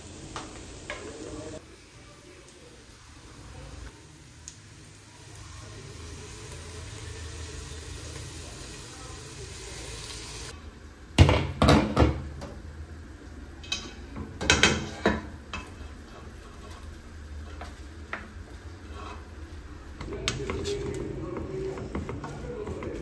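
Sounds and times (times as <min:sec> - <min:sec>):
steady sizzle: 0:00.0 - 0:23.0
utensil clanking against a pot: 0:13.6 - 0:19.3.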